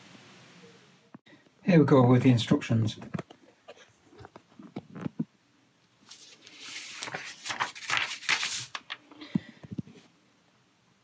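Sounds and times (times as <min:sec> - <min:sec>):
paper rustling: 0:06.0 - 0:10.1.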